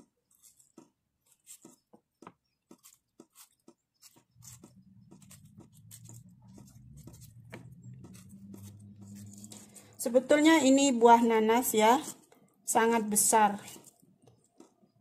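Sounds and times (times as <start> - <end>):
knife cutting pineapple skin: 0.0 - 11.3, 13.2 - 15.0
faint low hum: 4.3 - 13.4.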